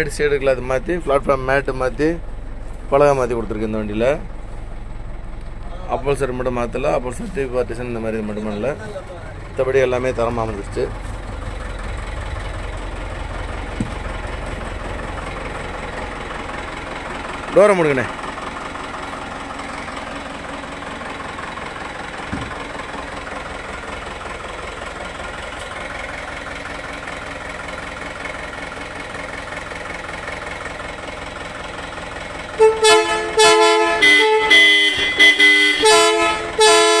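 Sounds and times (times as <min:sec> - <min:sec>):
minibus engine idling: 0:00.0 - 0:37.0
thump: 0:13.8 - 0:14.0, 0:22.3 - 0:22.6
multi-tone horn blasts: 0:32.6 - 0:37.0.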